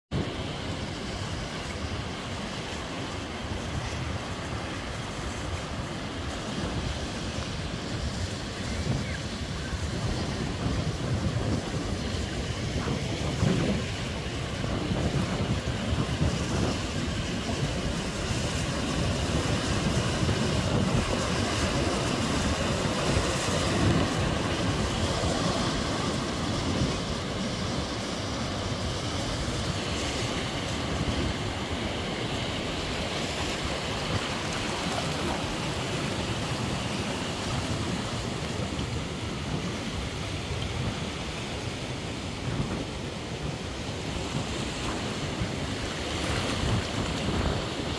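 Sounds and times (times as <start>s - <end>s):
ocean surf washing on rocks: 0.1s - 47.9s
wind on microphone: 0.1s - 47.9s.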